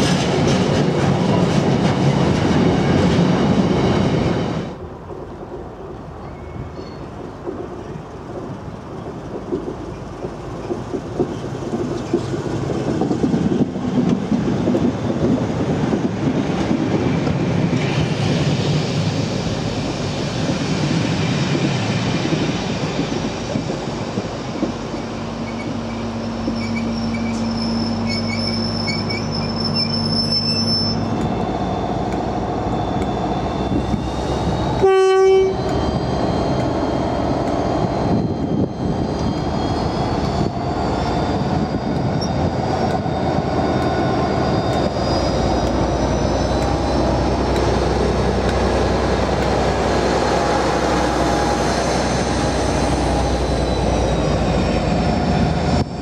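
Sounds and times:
diesel locomotive engine hum: 0.0 - 56.0
freight train rumbling past: 0.0 - 56.0
train coaches rumbling and clattering: 0.0 - 56.0
high wheel squeals: 25.0 - 56.0.

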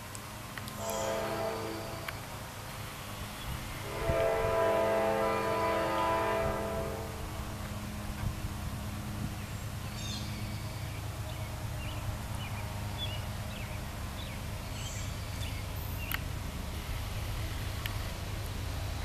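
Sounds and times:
freight train rumble: 0.0 - 19.0
birds chirping: 9.4 - 16.2.

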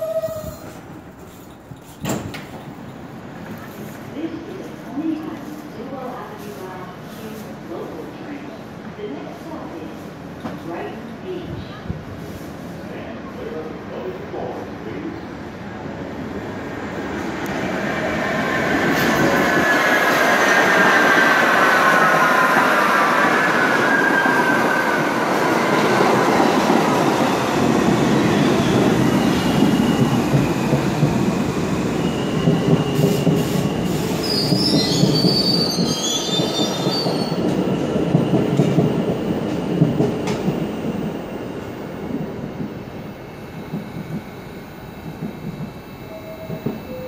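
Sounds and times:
subway train motor whine: 40.2 - 47.0
high brake squeals: 43.5 - 47.0.

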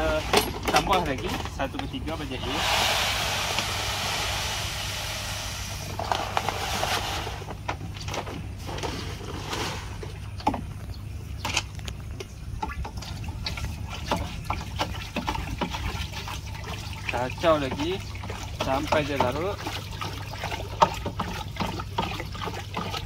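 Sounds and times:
light splashes of water: 11.5 - 23.0.

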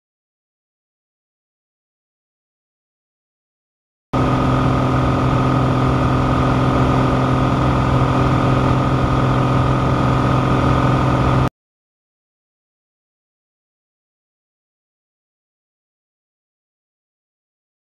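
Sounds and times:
light aircraft engine drone: 4.2 - 11.5.

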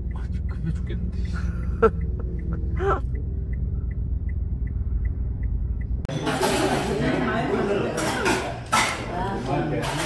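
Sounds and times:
car engine and road rumble: 0.0 - 6.1
turn signal ticking: 0.0 - 6.1.

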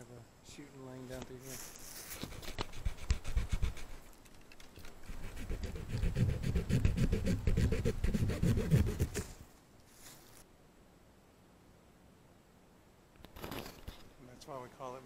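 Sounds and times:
hand saw cutting a tree limb: 5.1 - 9.4.

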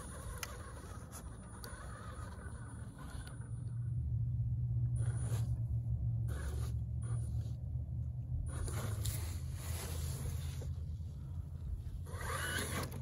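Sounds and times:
tires scrabbling in dirt: 0.0 - 3.8, 4.9 - 7.6, 8.2 - 13.0
electric motor humming: 11.2 - 13.0.

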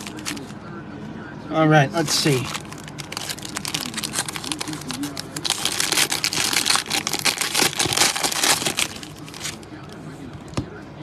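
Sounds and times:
foil card pack crinkling: 0.0 - 0.5, 2.1 - 9.6
foil pack tearing: 0.0 - 0.5, 2.3 - 9.6.

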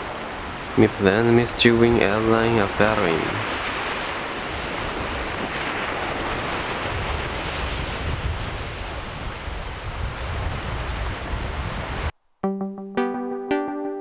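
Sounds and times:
ocean surf breaking: 0.0 - 12.1
wind rumbling on microphone: 3.4 - 12.1.

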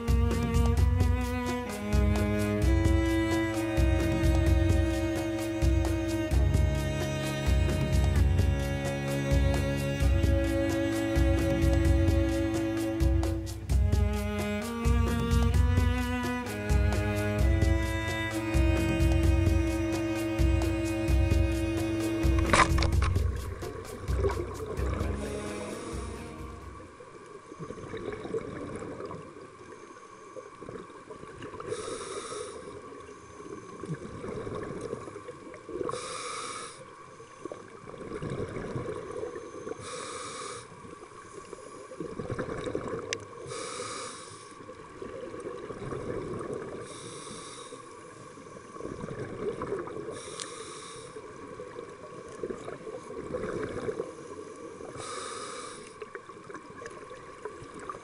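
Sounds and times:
rumble of exhaled bubbles: 22.2 - 27.0, 37.8 - 39.3, 52.4 - 54.2
hissing regulator inhale: 31.7 - 32.8, 35.8 - 36.9, 39.8 - 40.8, 43.4 - 44.6, 46.8 - 48.8, 50.1 - 51.4, 54.1 - 56.1.

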